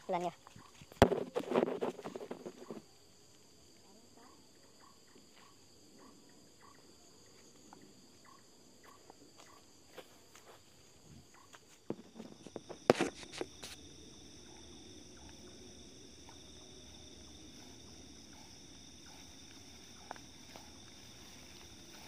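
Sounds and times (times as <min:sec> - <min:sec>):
crickets and night insects: 0:00.0 - 0:22.0
rustling through tall grass: 0:09.4 - 0:22.0.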